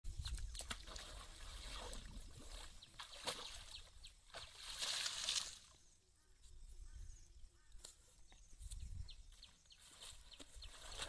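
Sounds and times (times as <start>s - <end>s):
elephant trunk splashing water: 0.6s - 5.7s.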